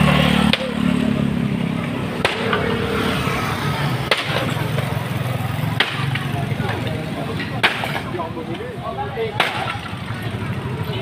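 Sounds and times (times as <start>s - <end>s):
sledgehammer striking wooden bench: 2.2s - 2.7s, 4.1s - 4.6s, 5.8s - 6.3s, 7.6s - 8.1s.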